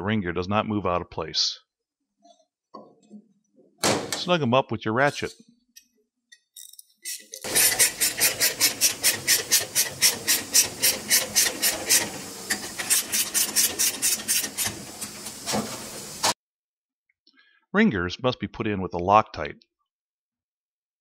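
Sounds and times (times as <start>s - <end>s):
hand ratchet clicking: 6.6s - 14.7s.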